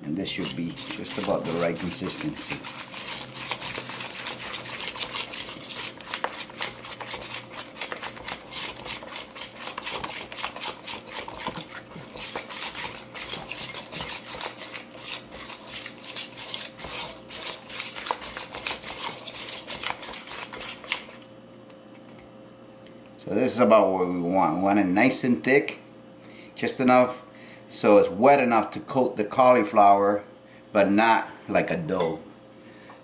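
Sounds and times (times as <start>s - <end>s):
whisk beating batter in metal bowl: 0.0s - 21.2s.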